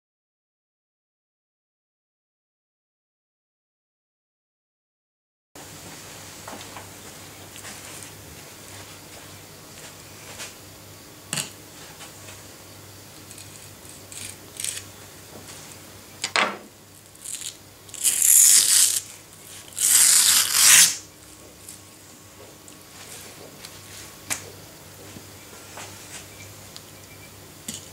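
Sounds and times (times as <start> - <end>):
fish skin tearing: 13.3 - 14.8, 19.7 - 21.0
short scrape: 19.7 - 21.0.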